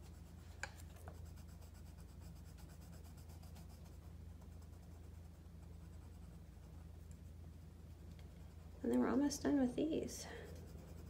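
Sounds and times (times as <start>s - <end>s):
pencil scratching on paper: 0.0s - 0.4s, 1.1s - 7.6s, 10.4s - 11.0s.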